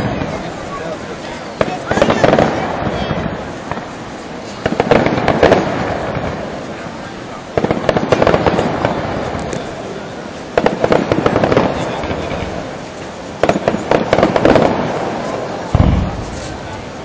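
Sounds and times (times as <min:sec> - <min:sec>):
fireworks bursting and crackling: 0:00.0 - 0:17.0
deep firework boom: 0:15.7 - 0:17.0.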